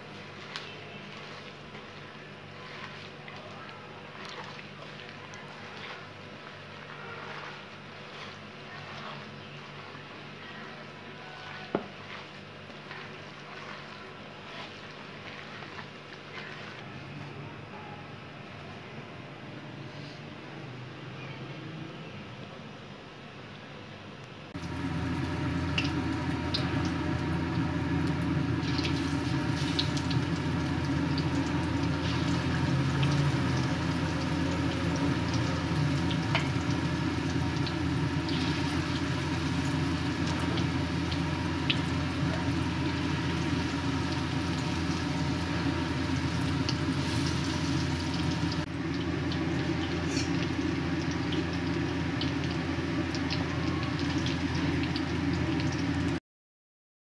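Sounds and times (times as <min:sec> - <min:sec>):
steady low hum: 0:24.5 - 0:56.1
food deep-frying in hot oil: 0:24.6 - 0:56.2.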